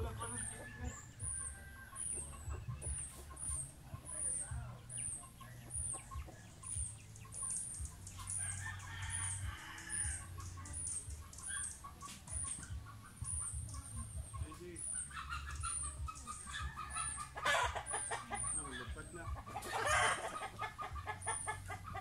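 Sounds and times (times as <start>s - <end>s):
rooster crowing: 0.0s - 2.3s, 8.4s - 10.4s, 19.7s - 20.4s
chickens clucking: 0.0s - 22.0s.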